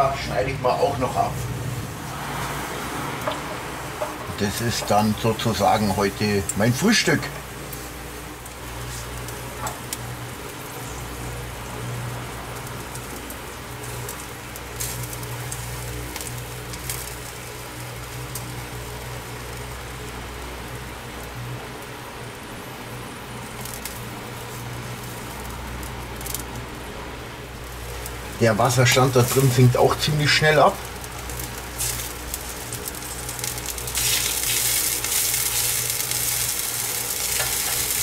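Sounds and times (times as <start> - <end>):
meat sizzling on a grill: 0.0 - 38.0
metal tongs clicking on grate: 37.3 - 37.9.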